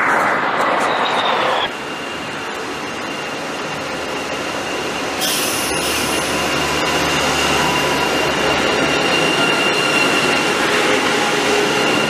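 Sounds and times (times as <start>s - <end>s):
electric train rushing noise: 0.0s - 12.0s
high train whine: 0.0s - 12.0s
sharp train hiss: 5.2s - 6.3s.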